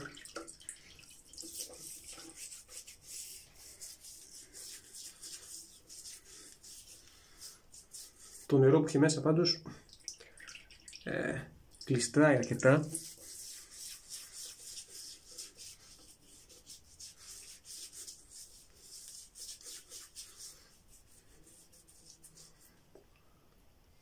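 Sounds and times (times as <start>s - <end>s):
wet hands rubbing stubbly face: 0.6s - 8.6s, 12.0s - 22.9s.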